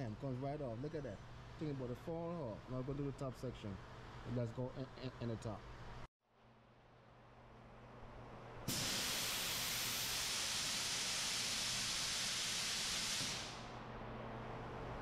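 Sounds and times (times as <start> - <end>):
compressed air hissing: 8.7 - 13.8.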